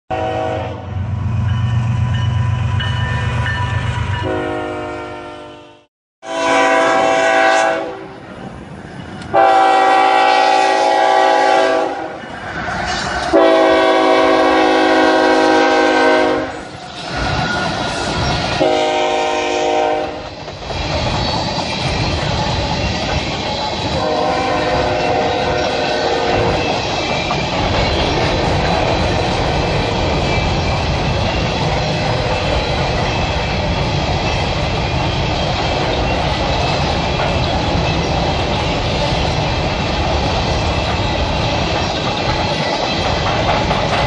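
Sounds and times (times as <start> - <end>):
locomotive horn blasts: 0.1 - 0.9, 4.2 - 8.1, 9.3 - 12.2, 13.3 - 16.6, 18.6 - 20.2, 24.0 - 26.6
wheels clattering over rail joints: 20.1 - 44.0.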